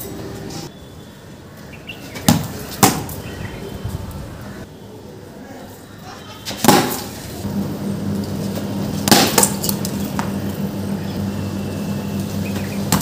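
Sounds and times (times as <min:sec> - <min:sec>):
cricket bat striking ball: 0:02.3 - 0:03.2, 0:06.6 - 0:07.1, 0:09.1 - 0:09.6.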